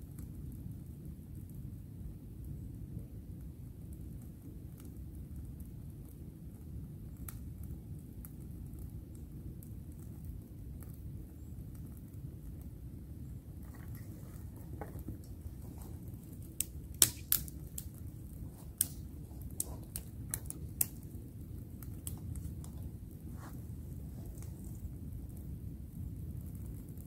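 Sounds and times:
campfire crackling: 0.0 - 27.0
low steady rumble: 0.0 - 27.0
sharp snaps and pops: 3.4 - 27.0.

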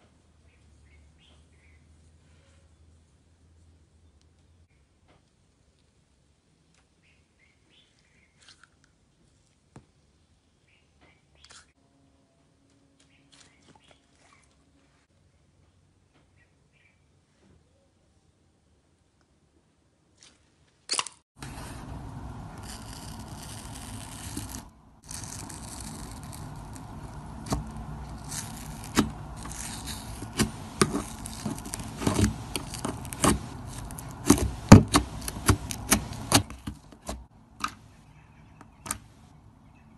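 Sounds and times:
slime being squished: 22.5 - 37.8
sharp pops and clicks: 23.9 - 37.8.

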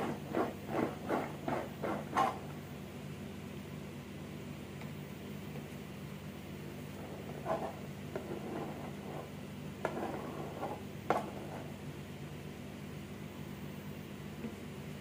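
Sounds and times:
spatula scraping frosting: 0.0 - 2.5, 6.9 - 11.8
steady low hum: 0.0 - 15.0.

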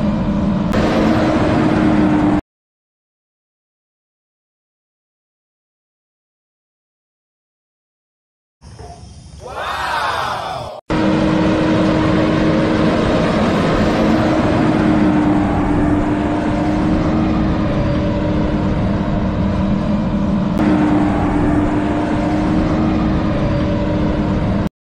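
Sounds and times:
vehicle engine humming: 0.0 - 2.4, 10.9 - 24.7.

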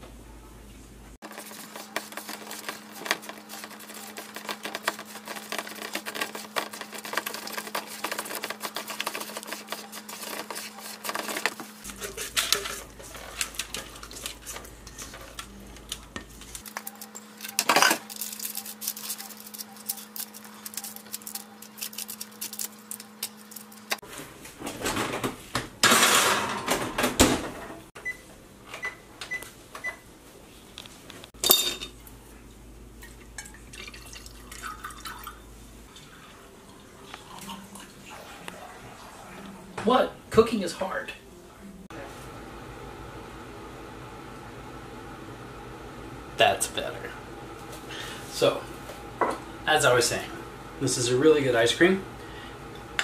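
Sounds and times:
spatula scraping steel bowl: 1.3 - 15.2
kitchen utensils clinking: 1.3 - 24.0, 25.8 - 27.0, 31.4 - 32.0
oven keypad beeps: 28.0 - 30.0
steady low hum: 41.2 - 53.0.

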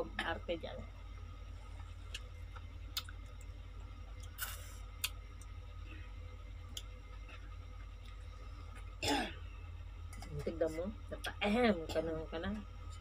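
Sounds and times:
steady low hum: 0.0 - 13.0
wet mouth chewing sounds: 2.9 - 3.4.

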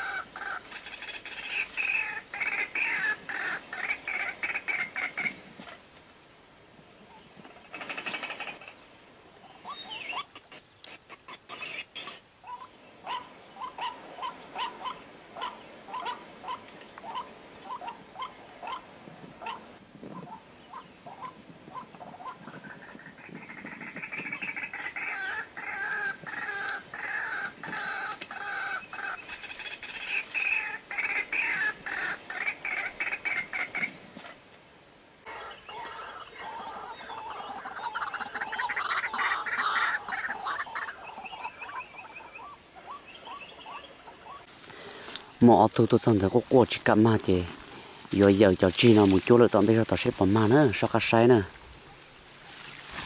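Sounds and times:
waterhen calling: 0.0 - 5.4, 11.5 - 19.6, 23.3 - 34.0, 35.3 - 53.0.

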